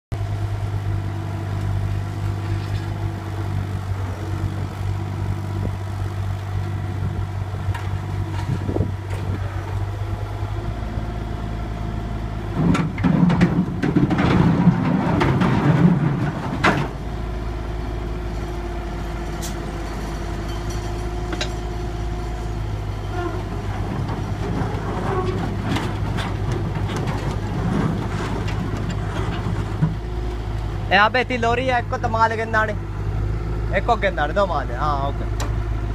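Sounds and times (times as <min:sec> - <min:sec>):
diesel engine running: 0:00.1 - 0:35.9
hydraulics working: 0:00.4 - 0:35.9
steel tracks grinding and clanking: 0:12.5 - 0:17.0, 0:22.4 - 0:30.0.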